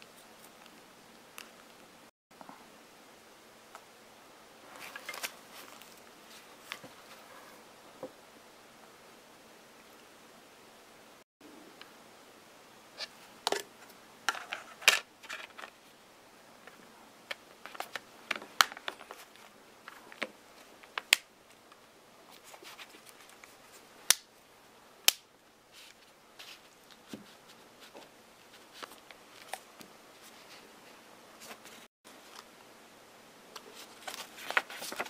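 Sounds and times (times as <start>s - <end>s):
rustling: 4.6s - 7.6s, 22.2s - 23.9s, 25.7s - 32.5s, 33.5s - 35.0s.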